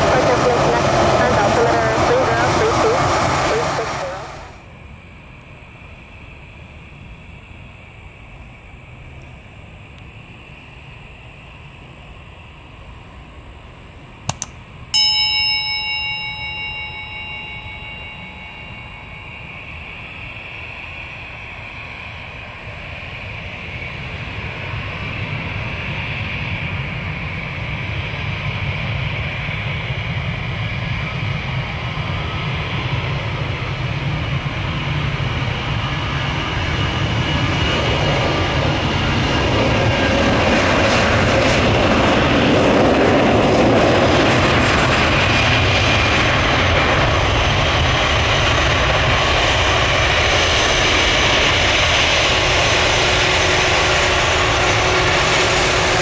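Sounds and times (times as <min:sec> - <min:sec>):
jet airliner engine noise: 0:00.0 - 0:56.0
sharp metallic clang ringing: 0:14.3 - 0:20.6.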